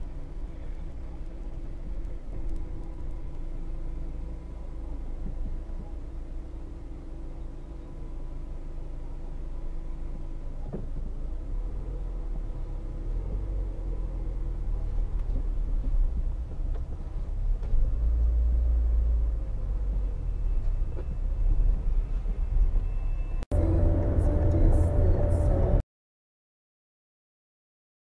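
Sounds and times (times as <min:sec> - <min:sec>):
car engine idling: 0:00.0 - 0:21.9, 0:23.5 - 0:25.8.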